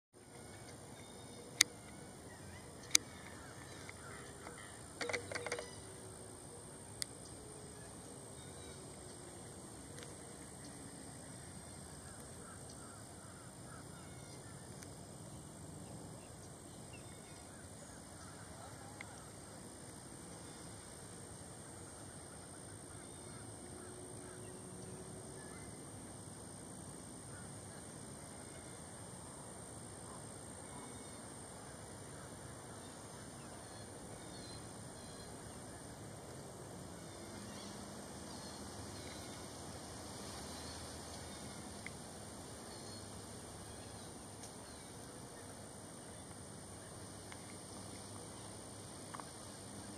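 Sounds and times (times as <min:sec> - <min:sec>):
steady low hiss: 0:00.2 - 0:49.9.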